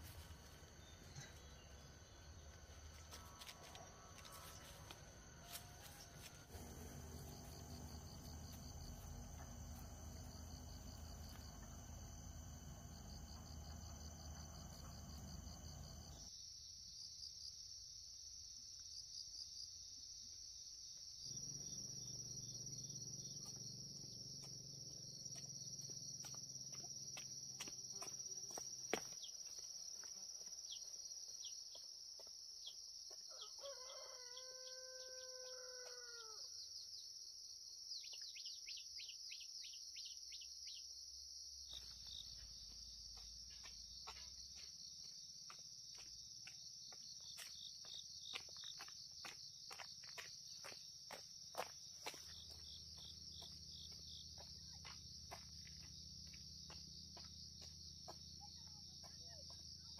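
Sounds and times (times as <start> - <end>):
crickets droning: 0.0 - 59.9
rooster crowing: 3.2 - 6.8, 33.3 - 36.6.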